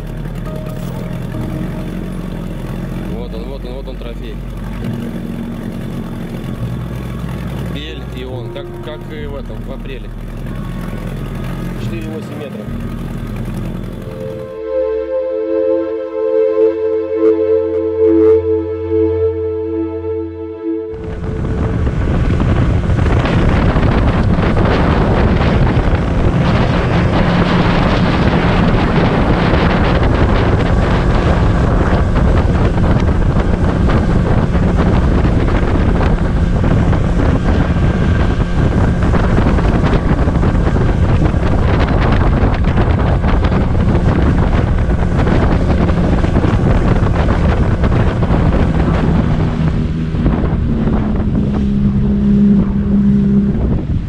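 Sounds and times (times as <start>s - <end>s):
outboard motor running: 0.0s - 15.6s, 20.9s - 54.0s
wind buffeting microphone: 20.9s - 54.0s.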